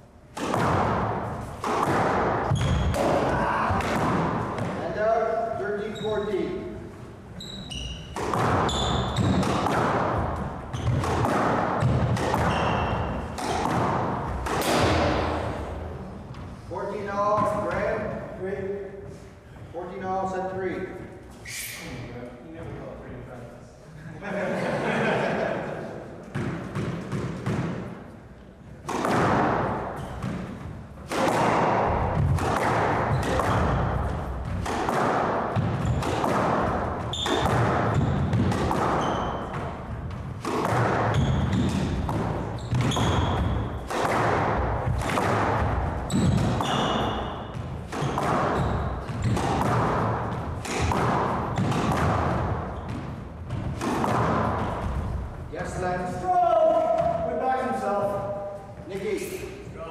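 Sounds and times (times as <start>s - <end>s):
squash racket strikes: 0.3s - 5.3s, 7.6s - 18.3s, 26.1s - 55.5s
shoe squeaks on wooden floor: 2.5s - 3.0s, 5.8s - 6.5s, 7.3s - 9.5s, 10.7s - 11.0s, 12.4s - 13.3s, 35.8s - 36.2s, 37.0s - 38.3s, 38.9s - 39.7s, 41.1s - 41.8s, 42.4s - 43.8s, 46.0s - 49.3s.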